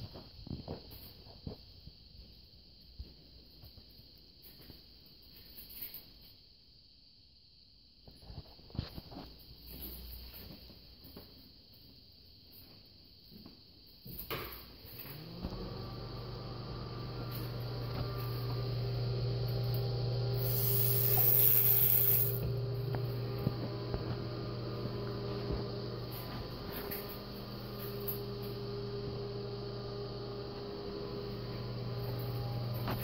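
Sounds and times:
low electrical hum: 14.9s - 33.0s
loud hiss: 20.4s - 22.4s.

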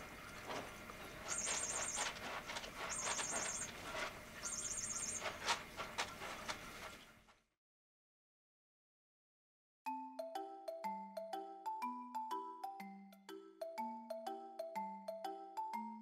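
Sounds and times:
rustling and handling noises: 0.3s - 7.5s
high rapid trilling chirps: 1.2s - 2.2s, 2.8s - 3.8s, 4.4s - 5.3s.

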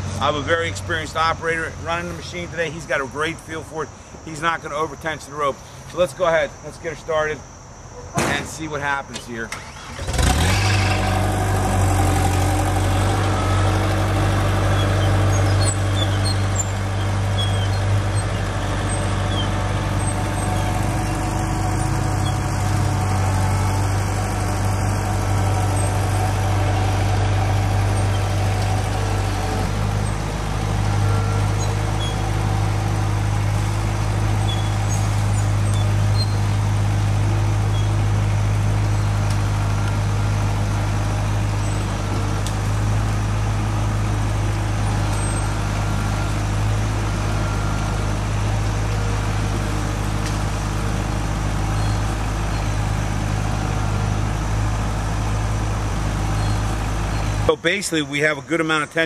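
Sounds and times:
diesel engine running: 0.0s - 5.8s, 8.4s - 59.0s.

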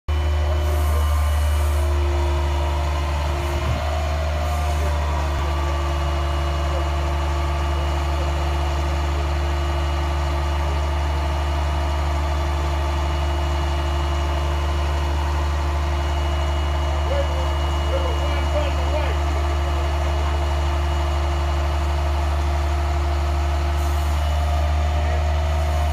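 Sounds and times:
truck engine idling: 0.1s - 25.9s
hydraulics raising bucket: 0.3s - 22.0s.

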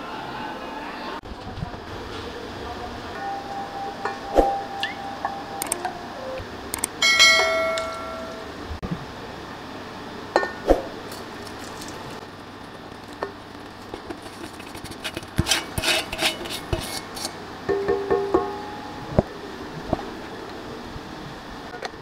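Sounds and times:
steel bowls clinking and ringing: 3.2s - 6.1s, 7.0s - 8.6s, 17.7s - 19.2s
spatula scraping bowl: 13.9s - 17.4s
knocks on steel bowl: 17.7s - 18.6s.

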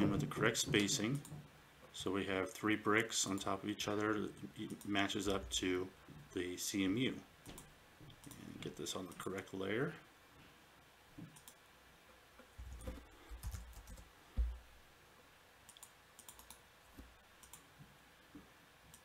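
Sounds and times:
mouse and keyboard clicks: 15.7s - 16.6s.

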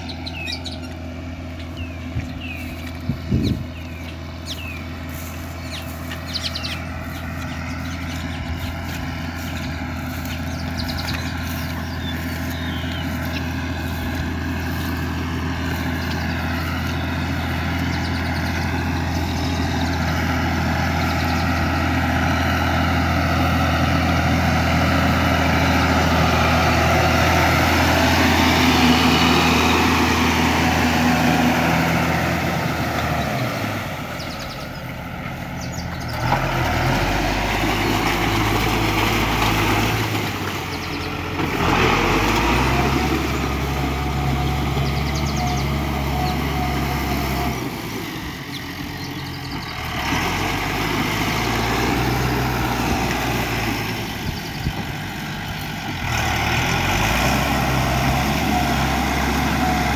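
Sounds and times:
tractor diesel engine running: 0.0s - 59.9s.

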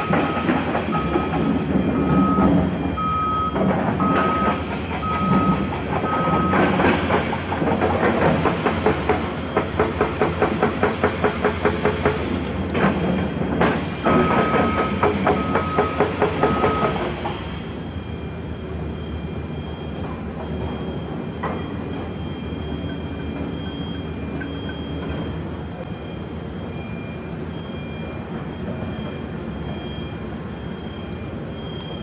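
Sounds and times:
excavator engine knocking: 0.0s - 17.8s.

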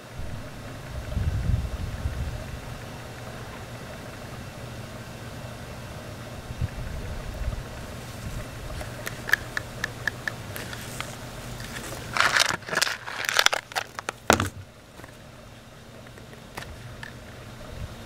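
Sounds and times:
steady low hum: 0.0s - 18.0s
rustling and crackling: 7.9s - 15.3s.

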